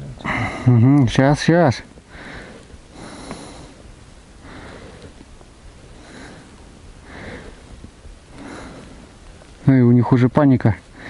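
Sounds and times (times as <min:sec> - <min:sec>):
person breathing: 0:00.2 - 0:00.7, 0:02.1 - 0:05.2, 0:05.9 - 0:09.2.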